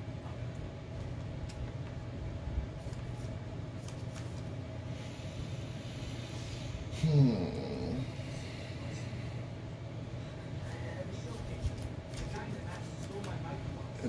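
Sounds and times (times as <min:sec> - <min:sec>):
low room hum: 0:00.0 - 0:14.0
trading cards clicking and shuffling: 0:00.9 - 0:02.0, 0:02.8 - 0:04.5, 0:11.4 - 0:13.4.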